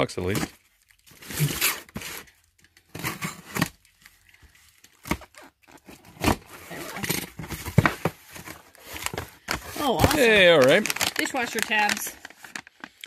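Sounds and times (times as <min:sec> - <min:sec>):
plastic tearing and crinkling: 0:00.3 - 0:13.0
box cutter slicing tape: 0:01.2 - 0:02.2.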